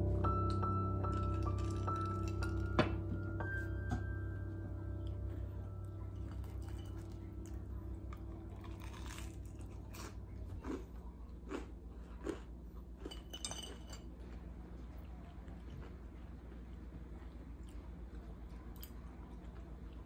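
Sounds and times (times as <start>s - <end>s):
person chewing crunchy bread: 8.1s - 13.3s.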